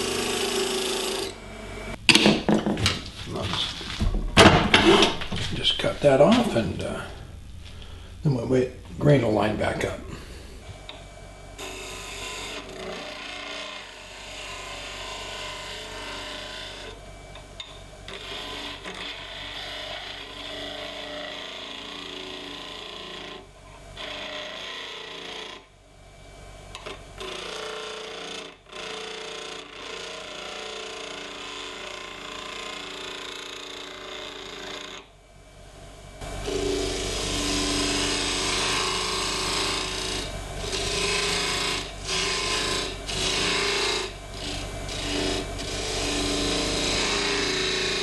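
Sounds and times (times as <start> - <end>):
wood lathe running: 0.0 - 2.0, 11.6 - 25.7, 26.7 - 35.1, 36.2 - 48.0
turning tool scraping wood: 18.1 - 23.4, 36.4 - 48.0.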